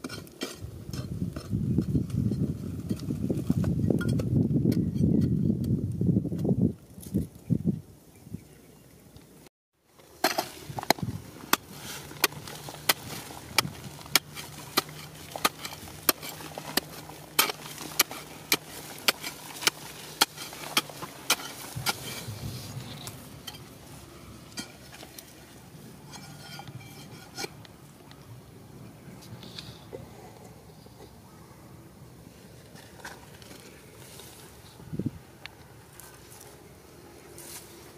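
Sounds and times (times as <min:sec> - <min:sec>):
scrapes and crumbling dirt: 0:00.0 - 0:07.5, 0:09.9 - 0:28.3, 0:32.3 - 0:37.9
soil and gravel trickling: 0:09.9 - 0:28.3.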